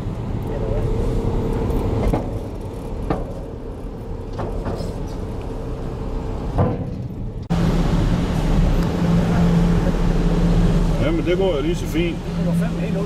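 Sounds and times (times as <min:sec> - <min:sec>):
car rolling rumble: 0:00.0 - 0:13.0
wheels clunking over ramp: 0:01.9 - 0:07.5.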